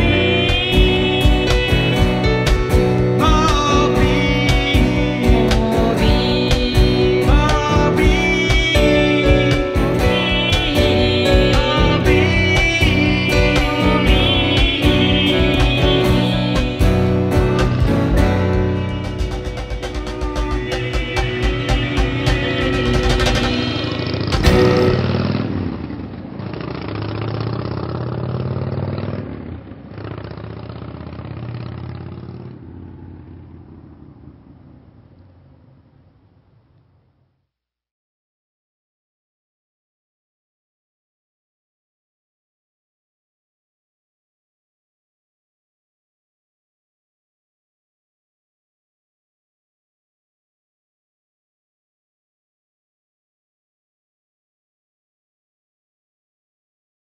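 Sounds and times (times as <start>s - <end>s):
steady drum beat: 0.0s - 25.0s
man singing: 0.0s - 25.1s
strummed acoustic guitar: 0.0s - 25.5s
motorcycle engine accelerating: 0.0s - 37.1s.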